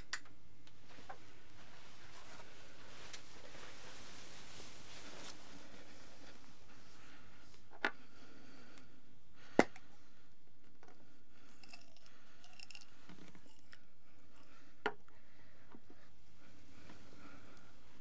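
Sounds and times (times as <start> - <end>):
person chewing and crunching: 11.4 - 13.8.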